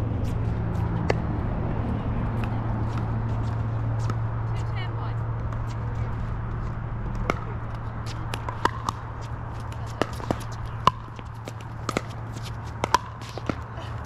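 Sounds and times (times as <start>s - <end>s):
low hum: 0.0s - 14.0s
paddles hitting plastic ball: 9.7s - 12.2s, 12.8s - 13.6s.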